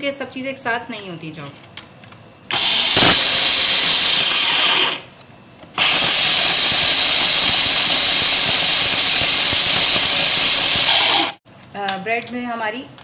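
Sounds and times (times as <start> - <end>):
food processor chopping bread: 2.5 - 5.1, 5.8 - 11.4.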